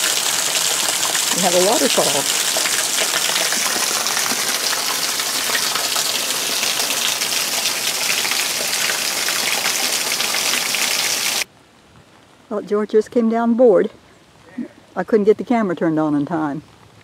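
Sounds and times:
heavy rain hissing: 0:00.0 - 0:11.5
runoff pouring off roof: 0:00.0 - 0:11.5.

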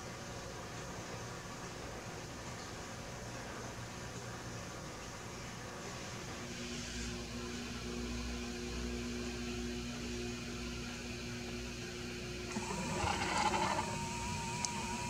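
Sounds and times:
machine hum with steady tones: 0:00.0 - 0:15.0
camera zoom motor whirring: 0:12.5 - 0:15.0.

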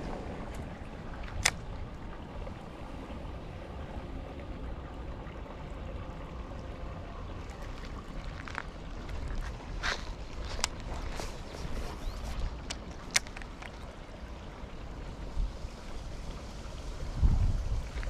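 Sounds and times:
wind on microphone: 0:15.2 - 0:18.0.

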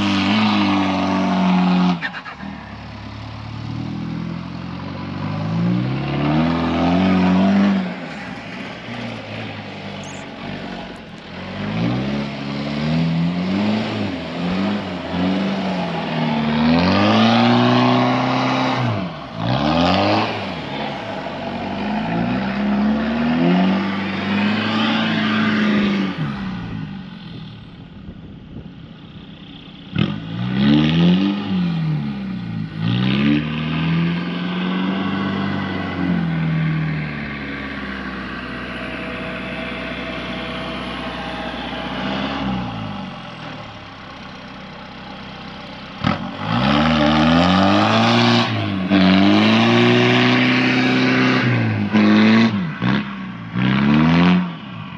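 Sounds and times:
diesel engine revving: 0:00.0 - 0:54.9.

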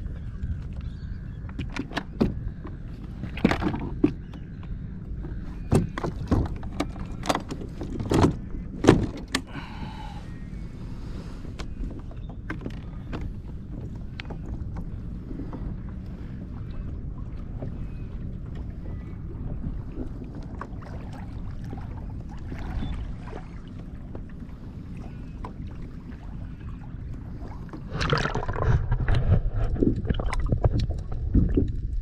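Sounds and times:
wind and water noise: 0:00.0 - 0:32.0.

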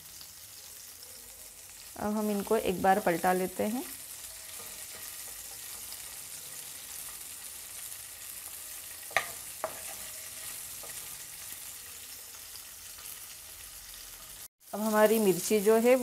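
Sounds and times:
chillies sizzling in oil: 0:00.0 - 0:16.0
spatula stirring in pan: 0:04.0 - 0:13.1
spatula knocking on pan: 0:09.1 - 0:10.0.

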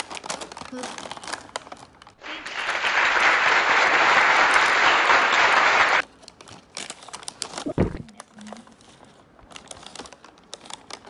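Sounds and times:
crowd clapping: 0:02.2 - 0:06.0.

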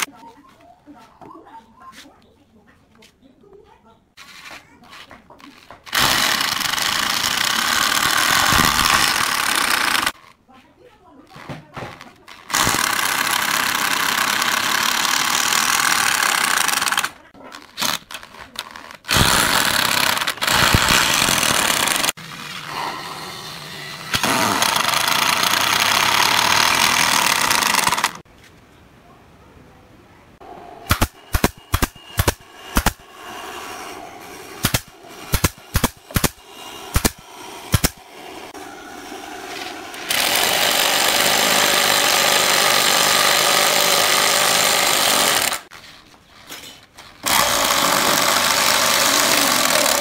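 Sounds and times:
power drill driving screws: 0:05.9 - 0:10.2, 0:12.4 - 0:17.1, 0:19.0 - 0:22.2, 0:24.0 - 0:28.2, 0:39.4 - 0:45.7, 0:47.2 - 0:50.0.

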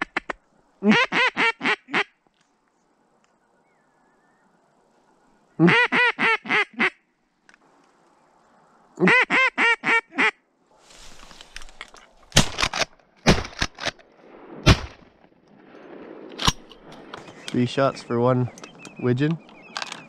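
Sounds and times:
loud duck quacks: 0:00.0 - 0:02.1, 0:05.6 - 0:07.0, 0:09.0 - 0:10.4
shotgun blasts: 0:12.3 - 0:15.2.

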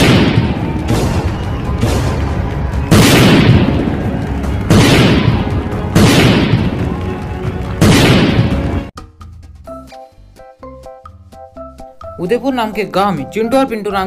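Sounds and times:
cartoon explosion booms: 0:00.0 - 0:03.9, 0:04.7 - 0:06.8
background music: 0:00.0 - 0:14.0.

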